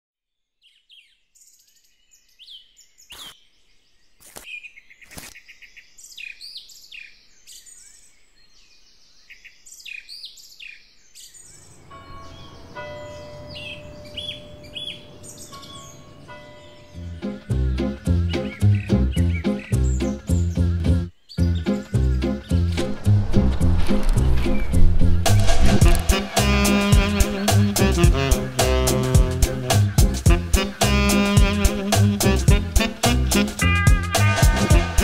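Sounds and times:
small birds chirping: 0.4s - 22.8s, 26.1s - 33.6s
background music: 16.2s - 35.0s.

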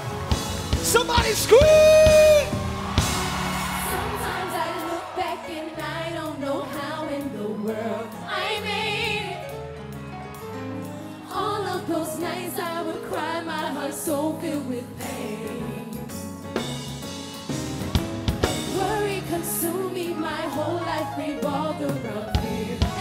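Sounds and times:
vocal group singing: 1.0s - 9.6s, 11.2s - 16.4s, 18.5s - 23.0s.

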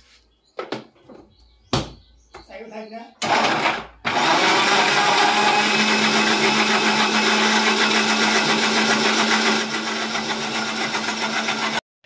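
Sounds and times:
electric blender running: 3.2s - 11.8s.

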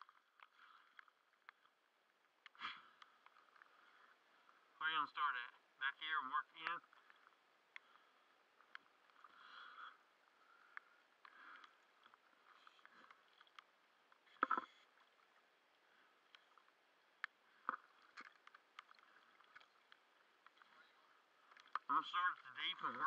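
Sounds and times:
small clicks: 0.0s - 4.6s, 10.6s - 15.4s, 16.2s - 21.9s
water lapping and splashing: 0.0s - 4.8s, 5.6s - 23.0s.

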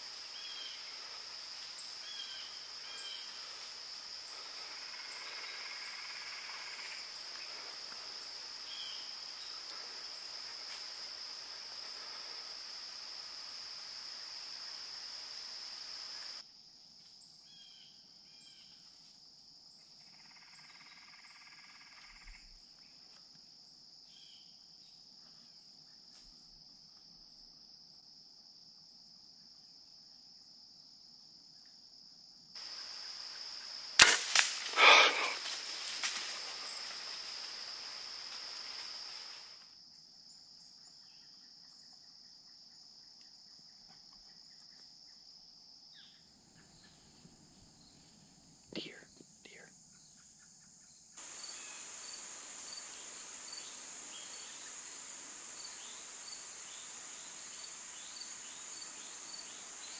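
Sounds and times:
insects droning: 0.0s - 59.9s
bow string snap: 34.0s - 36.3s
thuds and rustles: 34.0s - 37.5s.

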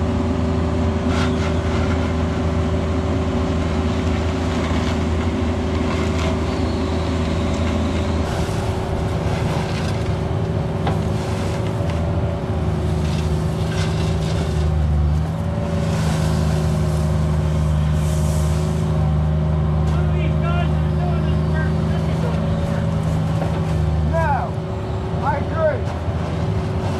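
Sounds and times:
excavator diesel engine running: 0.0s - 26.9s
steel bucket scraping gravel: 4.3s - 12.0s, 12.8s - 19.0s.

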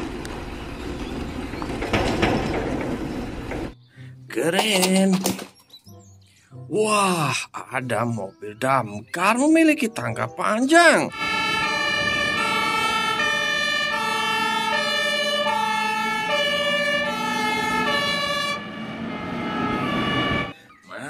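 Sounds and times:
two-tone fire engine siren: 11.1s - 20.6s.

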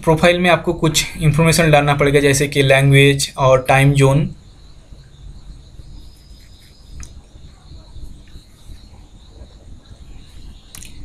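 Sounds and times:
faint click: 10.7s - 11.0s.

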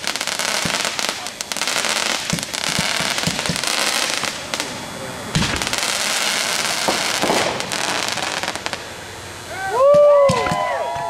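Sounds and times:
firework bang: 0.0s - 9.0s
fireworks crackling and popping: 0.0s - 11.0s.

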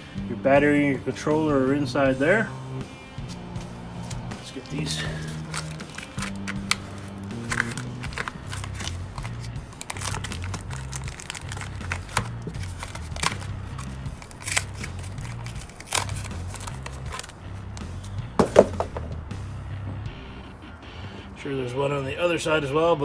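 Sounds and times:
background music with bass line: 0.0s - 23.0s
cardboard crinkling and scraping: 4.1s - 17.3s.

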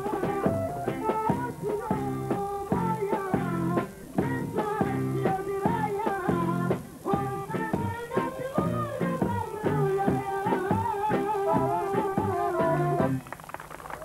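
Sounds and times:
boy singing into microphone: 0.0s - 13.2s
instrumental backing with beat: 0.0s - 13.4s.

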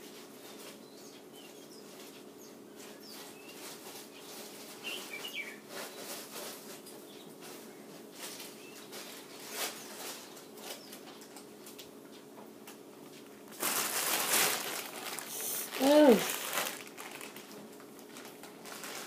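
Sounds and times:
faint clicks and rustles: 0.2s - 19.0s.

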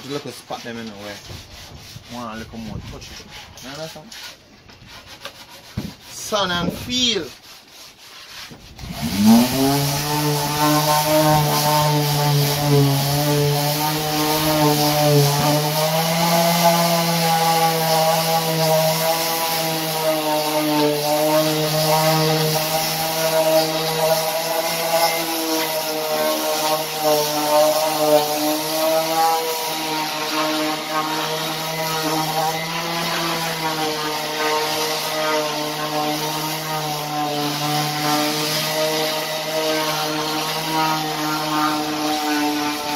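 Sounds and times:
electric sander running on wood: 8.8s - 42.9s.

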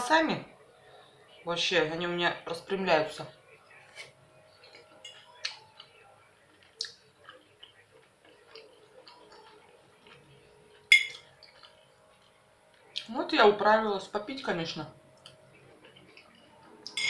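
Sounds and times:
faint chewing: 3.7s - 13.1s, 15.2s - 17.0s
fork clinking on ceramic plate: 10.9s - 11.2s.

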